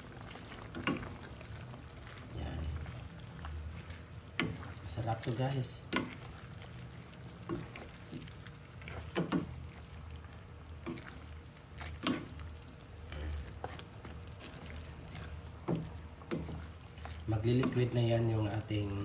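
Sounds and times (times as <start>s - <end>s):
food simmering in a pan: 0.0s - 19.0s
wooden spatulas stirring greens: 0.0s - 19.0s
wood knocking against a pan: 9.1s - 9.6s, 15.6s - 16.6s.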